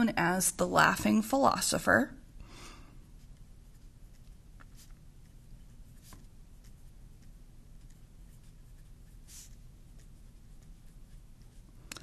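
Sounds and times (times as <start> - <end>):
pen scratching on paper: 3.2 - 11.7.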